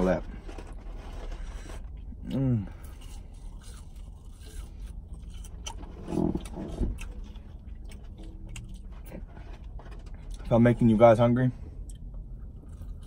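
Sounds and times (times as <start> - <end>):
chewing crunches and clicks: 2.2 - 10.9, 11.8 - 13.0.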